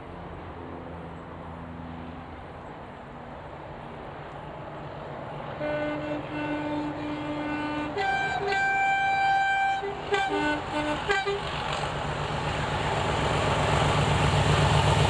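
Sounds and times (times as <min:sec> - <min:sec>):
diesel engine rumble: 0:00.0 - 0:15.0
two-tone locomotive horn: 0:05.6 - 0:11.8.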